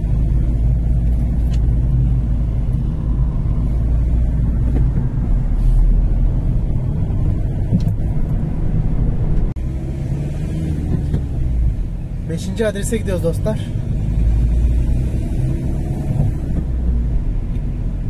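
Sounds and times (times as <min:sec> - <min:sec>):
engine and tyre rumble: 0:00.0 - 0:18.0.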